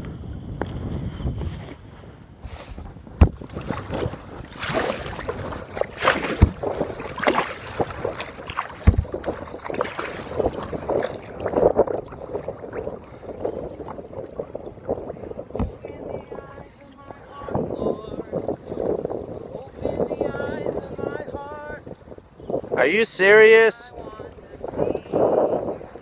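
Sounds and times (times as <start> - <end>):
paddle strokes splashing: 1.2 - 26.0
sharp knocks: 6.0 - 7.4, 8.8 - 9.2.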